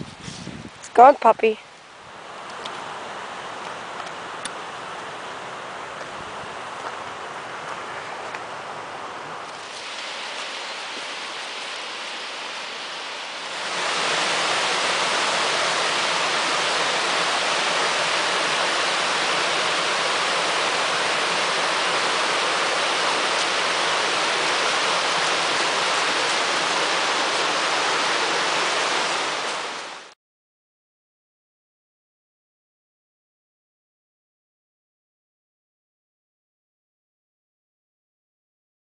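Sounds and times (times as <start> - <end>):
stream rushing over boulders: 0.0 - 30.2.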